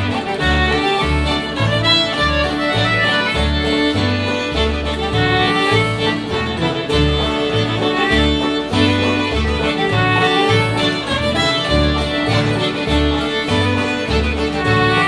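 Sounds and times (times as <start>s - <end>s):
acoustic guitar strumming: 0.0s - 15.0s
concertina melody: 0.0s - 15.0s.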